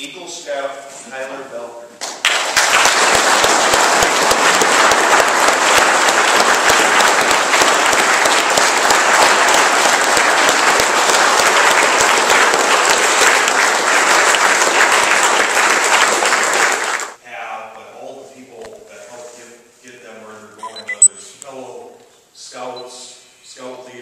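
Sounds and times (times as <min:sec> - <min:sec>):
audience clapping: 0:02.0 - 0:17.2.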